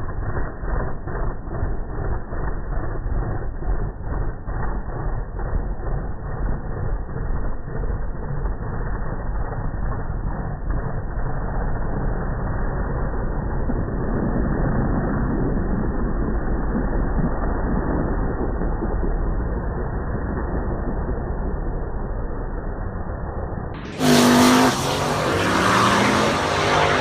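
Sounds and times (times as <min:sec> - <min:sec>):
pickup truck engine revving: 0:23.8 - 0:27.0.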